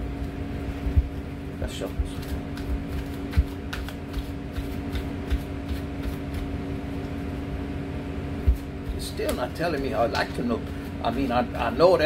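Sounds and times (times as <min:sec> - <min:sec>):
low machinery hum: 0:00.0 - 0:12.0
cards being shuffled: 0:01.8 - 0:06.5.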